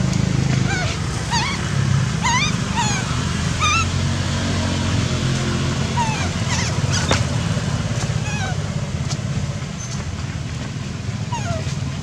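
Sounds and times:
baby monkey squealing: 0.6s - 3.9s, 5.9s - 7.2s, 8.2s - 8.6s, 11.3s - 11.7s.

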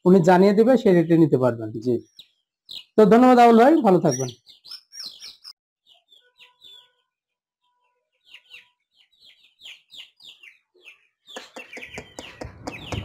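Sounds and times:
chicks peeping: 0.8s - 7.0s, 8.1s - 13.0s.

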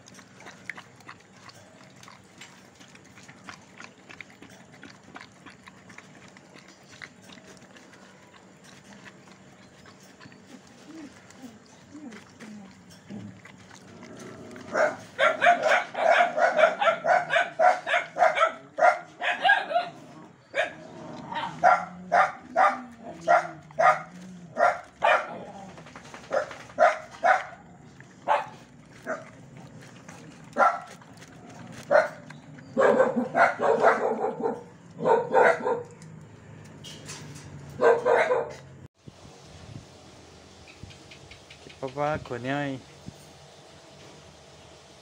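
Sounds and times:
dog barking: 14.8s - 19.9s, 20.5s - 20.8s, 21.4s - 25.5s, 26.3s - 27.6s, 28.2s - 29.3s, 30.5s - 31.0s, 31.9s - 32.2s, 32.8s - 36.0s, 37.8s - 38.6s.

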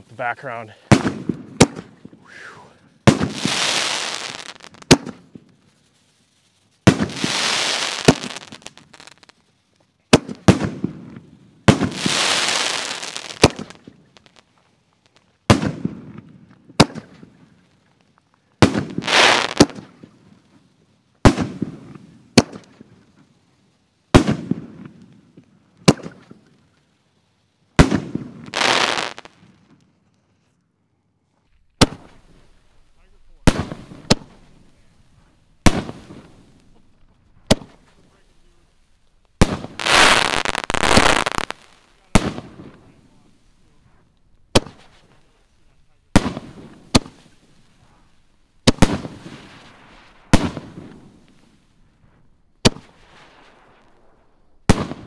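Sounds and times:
firework booms: 0.9s - 5.4s, 6.8s - 9.2s, 10.1s - 14.2s, 15.5s - 17.3s, 18.6s - 20.0s, 21.2s - 22.6s, 24.2s - 25.0s, 27.8s - 29.3s, 31.6s - 55.0s
firework hissing crackle: 0.9s - 9.5s, 11.6s - 16.0s, 18.6s - 20.0s, 27.8s - 29.5s, 31.6s - 55.0s.

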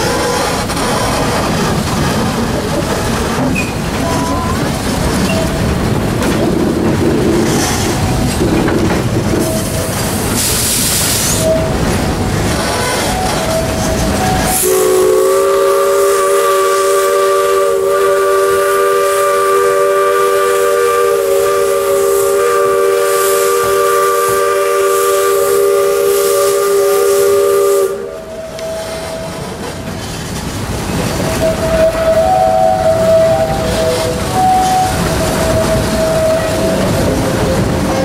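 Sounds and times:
moving train running noise: 0.0s - 38.0s
steam locomotive chime whistle: 3.6s - 5.8s, 9.4s - 29.7s, 31.1s - 38.0s.

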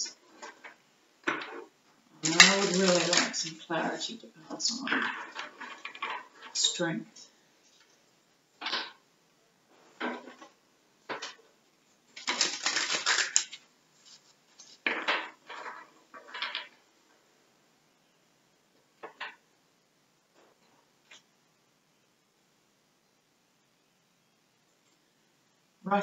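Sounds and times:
cards being shuffled: 2.2s - 3.6s, 12.1s - 16.7s.

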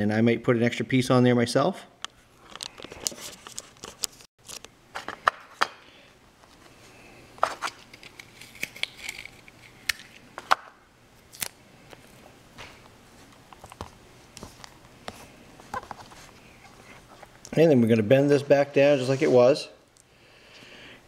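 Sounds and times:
adhesive tape crinkling and tapping: 7.6s - 10.7s.

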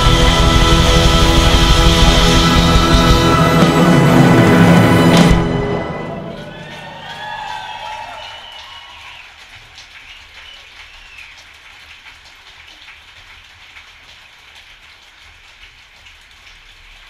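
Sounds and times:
pit band music: 0.0s - 8.7s
audience applause: 0.0s - 17.0s.

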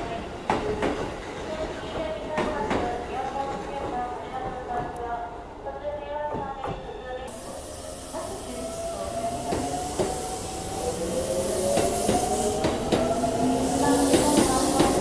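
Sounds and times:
steady hiss: 7.3s - 12.8s.

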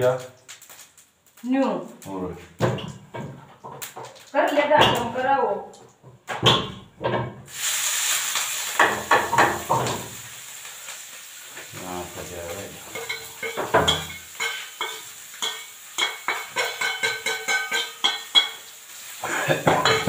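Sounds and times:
food sizzling in hot pan: 0.0s - 4.7s, 7.2s - 20.0s
steel plates and spoon clinking: 12.5s - 18.7s, 19.6s - 20.0s.

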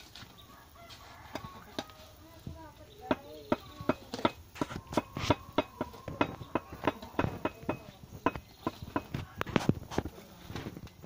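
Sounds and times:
masonry tools knocking blocks: 3.0s - 10.1s.

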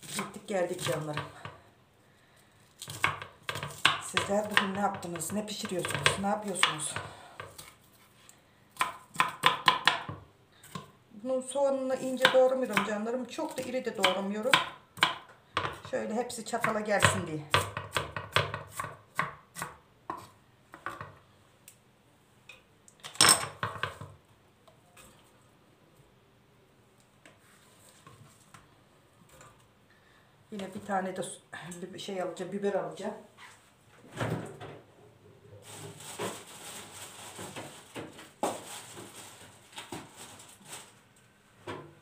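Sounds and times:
knife chopping on plastic board: 2.8s - 7.7s, 8.8s - 10.9s, 13.6s - 15.9s, 16.6s - 21.1s
rustling: 35.6s - 41.3s.

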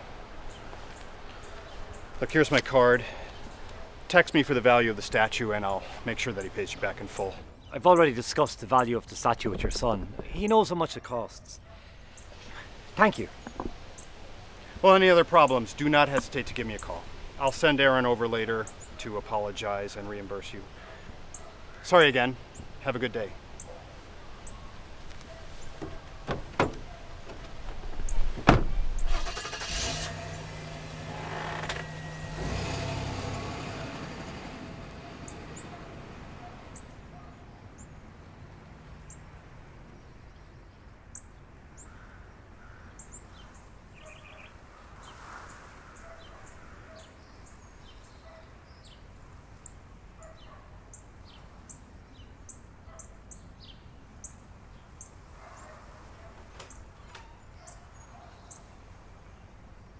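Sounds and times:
faint outdoor ambience: 0.0s - 59.9s
knocking on car door: 25.8s - 26.8s
car engine starting and running: 28.4s - 36.8s
car pulling away: 29.0s - 37.0s.

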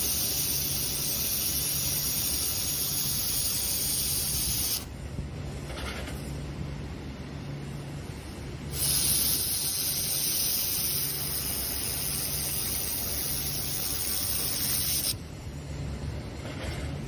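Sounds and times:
laser welding gun hiss: 0.0s - 4.9s, 8.7s - 15.2s.

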